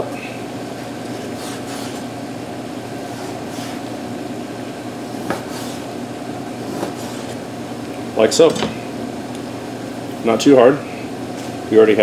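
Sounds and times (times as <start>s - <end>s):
steady machine hum: 0.0s - 12.0s
knife slicing on cutting board: 1.1s - 2.1s, 3.0s - 3.8s, 5.2s - 5.9s, 6.6s - 7.4s.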